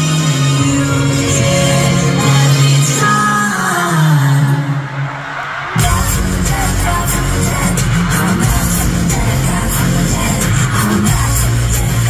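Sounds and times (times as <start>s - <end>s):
live pop band music: 0.0s - 12.0s
singer's voice: 0.0s - 12.0s
drums hitting: 5.6s - 12.0s.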